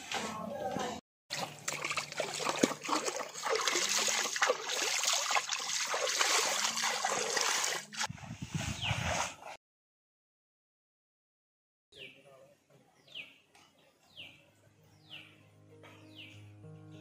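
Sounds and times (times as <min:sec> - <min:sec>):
water trickling: 0:01.3 - 0:07.9
hand splashing in stream water: 0:01.3 - 0:08.1.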